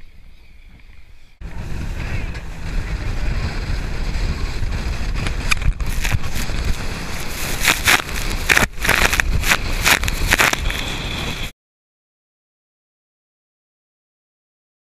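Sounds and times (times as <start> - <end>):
boat engine rumble: 0.0 - 11.5
wind buffeting microphone: 0.0 - 11.5
hissing spray over bow: 5.8 - 11.4.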